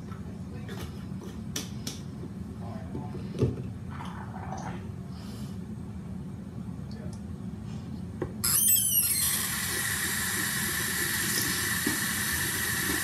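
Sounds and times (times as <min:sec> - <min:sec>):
tap squealing: 0:08.4 - 0:09.9
water running from tap: 0:08.9 - 0:13.0.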